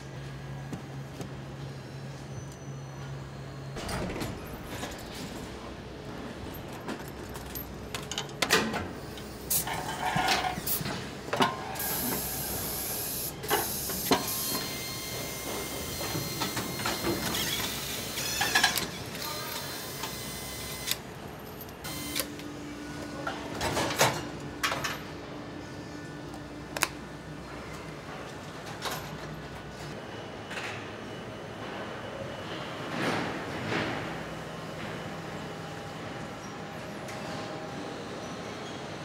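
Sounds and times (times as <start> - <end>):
tools clicking and clanking: 6.5 - 11.6.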